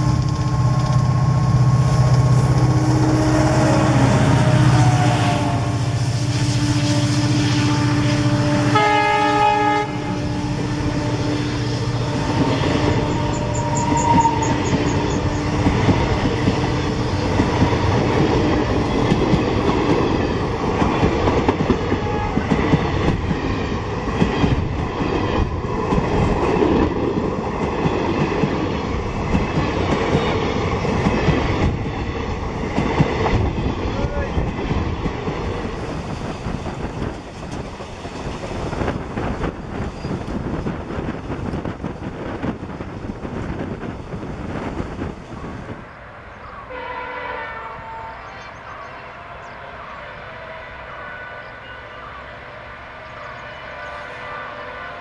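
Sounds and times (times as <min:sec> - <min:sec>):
diesel locomotive engine drone: 0:00.0 - 0:55.0
train horn note: 0:00.6 - 0:17.1, 0:21.9 - 0:23.0, 0:46.4 - 0:55.0
train wheels clacking on rails: 0:11.6 - 0:45.8.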